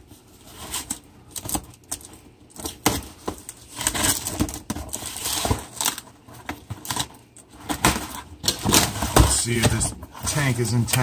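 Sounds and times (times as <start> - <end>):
cardboard box rustling and scraping: 3.0 - 11.0.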